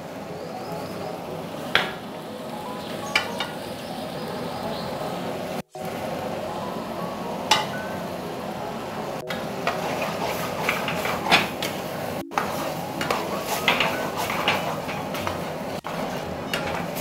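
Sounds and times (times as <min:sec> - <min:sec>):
sauce hissing: 0:09.2 - 0:17.0
metal ladle scraping in a pan: 0:09.3 - 0:17.0.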